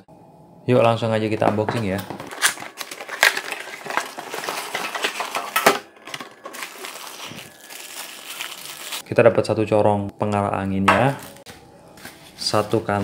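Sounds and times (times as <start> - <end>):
plastic packaging crinkling: 1.4 - 9.0, 11.1 - 11.5.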